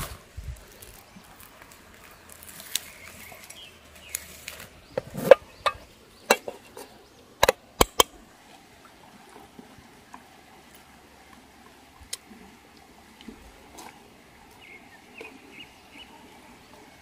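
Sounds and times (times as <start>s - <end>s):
faint outdoor background: 0.0s - 17.0s
metal utensil knocking cookware: 5.2s - 6.7s, 7.4s - 8.1s.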